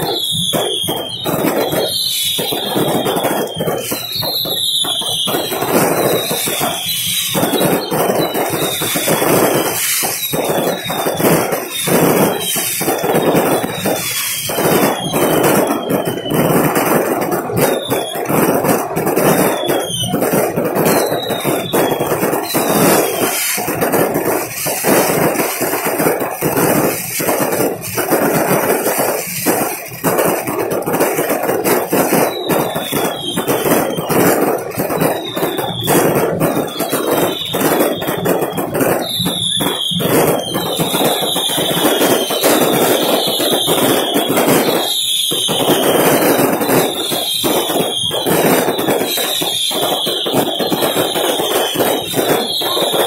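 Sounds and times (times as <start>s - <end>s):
falling fireworks whistles: 0.0s - 53.0s
fireworks bangs: 0.0s - 53.0s
fireworks crackling: 0.0s - 53.0s.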